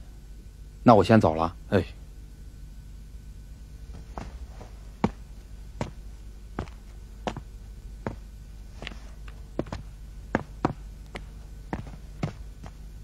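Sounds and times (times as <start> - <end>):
low steady hum: 0.0 - 13.0
footsteps on hard ground: 3.9 - 13.0.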